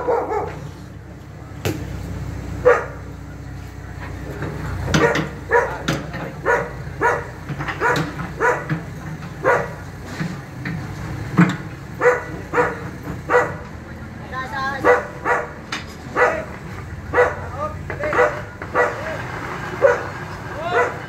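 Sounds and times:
dog barking: 0:00.0 - 0:00.7, 0:02.6 - 0:03.0, 0:05.0 - 0:08.8, 0:09.4 - 0:09.8, 0:12.0 - 0:13.7, 0:14.8 - 0:17.5, 0:18.1 - 0:19.2, 0:19.8 - 0:21.0
engine humming: 0:00.0 - 0:21.0.

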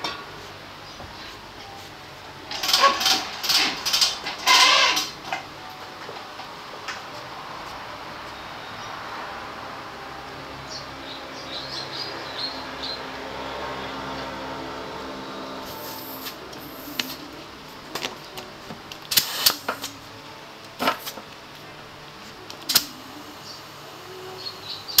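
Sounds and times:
steady hum: 0:00.0 - 0:25.0
air hissing from tyre inflator: 0:15.6 - 0:17.2, 0:19.1 - 0:19.9.

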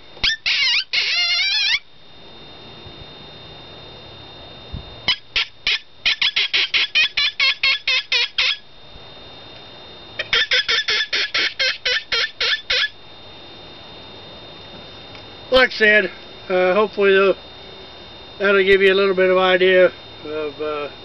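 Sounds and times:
predator call squeals: 0:00.2 - 0:01.9, 0:05.1 - 0:08.6, 0:10.2 - 0:13.0.

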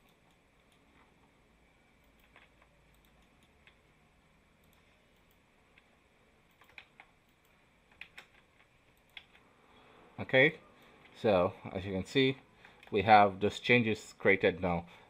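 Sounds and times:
faint keyboard clicks: 0:02.0 - 0:03.8, 0:04.6 - 0:09.5.

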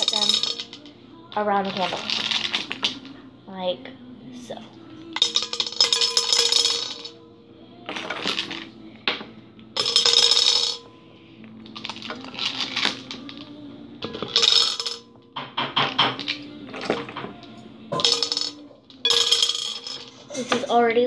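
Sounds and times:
ornaments clinking against glass bowl: 0:00.0 - 0:00.9, 0:05.2 - 0:07.2, 0:09.8 - 0:11.0, 0:11.6 - 0:16.9, 0:17.9 - 0:20.6.

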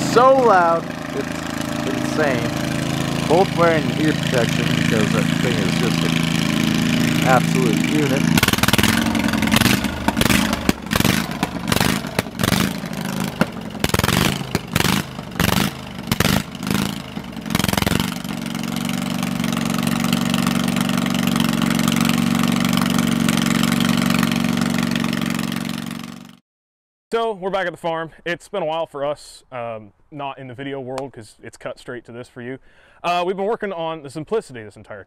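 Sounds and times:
loud unmuffled engine running: 0:00.0 - 0:26.4.

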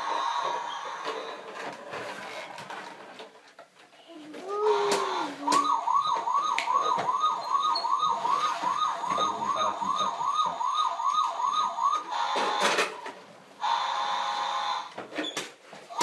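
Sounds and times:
toy fire truck siren: 0:00.0 - 0:01.5, 0:04.6 - 0:14.9.

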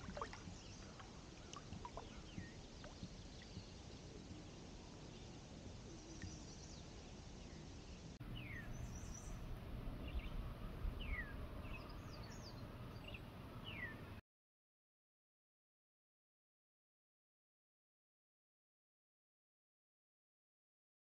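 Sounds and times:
low outdoor background noise: 0:00.0 - 0:14.2
high bird chirps: 0:08.3 - 0:09.4.

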